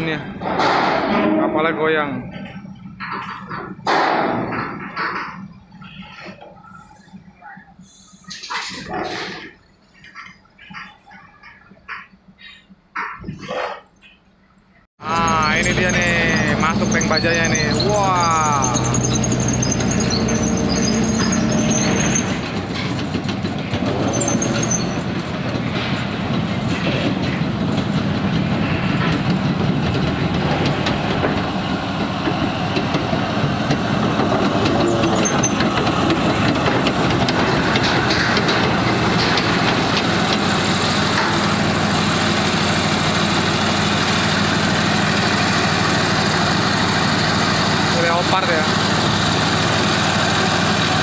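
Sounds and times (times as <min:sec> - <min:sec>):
steel tracks clattering: 0:00.0 - 0:14.2, 0:15.0 - 0:51.0
tank engine running: 0:15.0 - 0:51.0.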